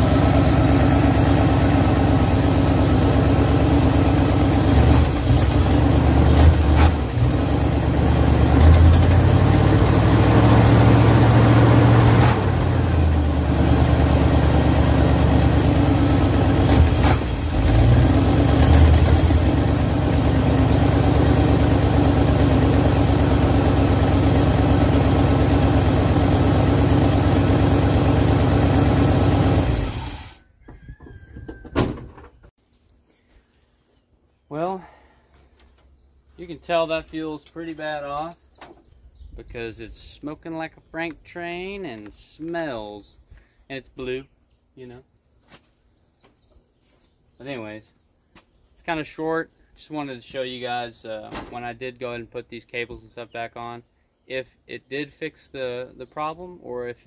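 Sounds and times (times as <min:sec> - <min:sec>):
pickup engine revving: 0:00.0 - 0:30.3.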